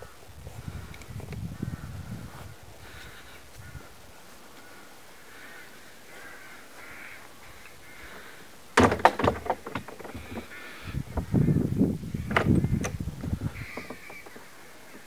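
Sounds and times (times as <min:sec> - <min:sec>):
crows cawing: 0:02.8 - 0:08.6, 0:10.1 - 0:11.6, 0:13.4 - 0:15.0
loud crackling and knocks: 0:08.8 - 0:10.6.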